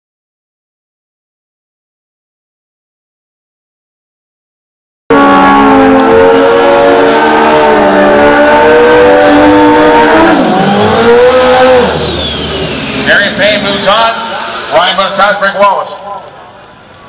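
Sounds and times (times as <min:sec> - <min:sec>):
motorcycle engine revving: 0:05.1 - 0:15.2
spinning tyre noise: 0:05.8 - 0:17.0.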